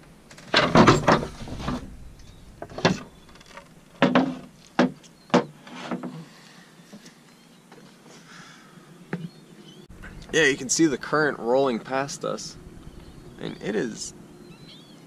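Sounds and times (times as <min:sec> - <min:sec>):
wooden clatter and scraping: 0:00.0 - 0:06.3.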